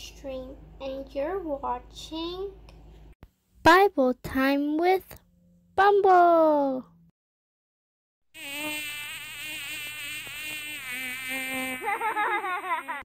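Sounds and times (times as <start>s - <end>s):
bee buzzing: 8.4s - 13.0s.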